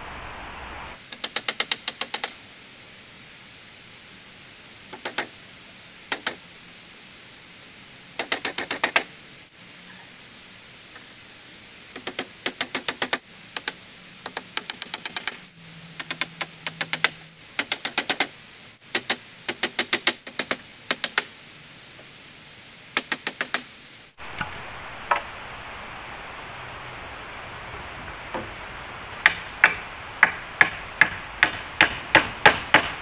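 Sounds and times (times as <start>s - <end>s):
steady hiss: 0.0s - 33.0s
hammer striking nails: 29.2s - 33.0s.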